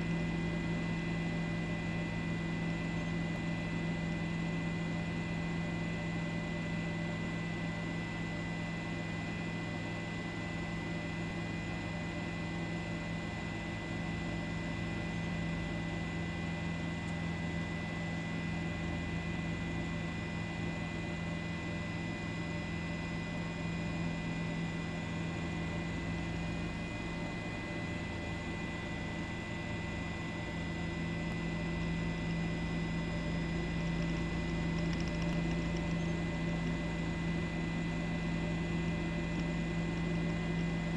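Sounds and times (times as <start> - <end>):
faint high whine: 13.2 - 40.9
steady hum: 14.2 - 40.9.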